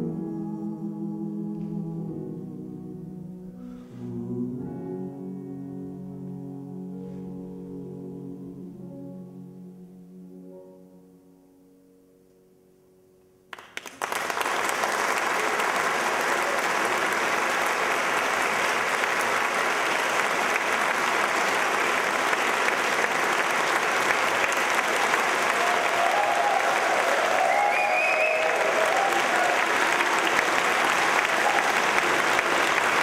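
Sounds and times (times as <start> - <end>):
audience applause: 13.6 - 33.0.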